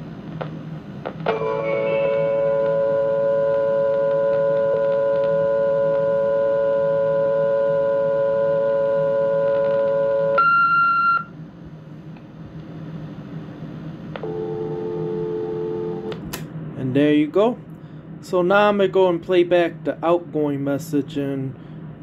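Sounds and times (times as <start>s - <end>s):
two-note telephone line tone: 1.3s - 11.3s, 14.2s - 16.2s.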